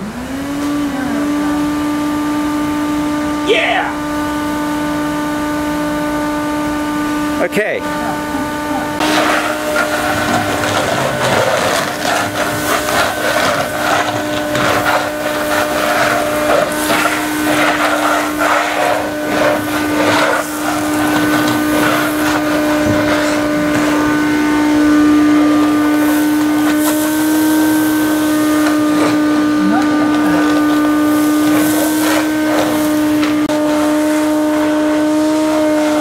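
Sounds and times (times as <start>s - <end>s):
shop vacuum motor whine: 0.0s - 36.0s
sand rattling through hose: 9.0s - 24.1s, 25.7s - 36.0s.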